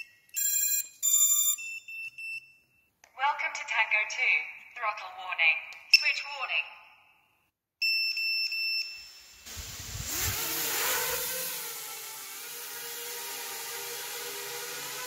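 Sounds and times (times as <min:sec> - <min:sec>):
drone motors whining: 0:09.4 - 0:15.0
rush of air: 0:09.5 - 0:10.5.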